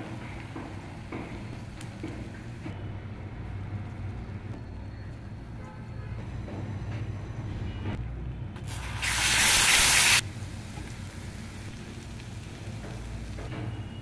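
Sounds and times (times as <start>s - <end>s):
loud hiss: 8.7s - 10.2s.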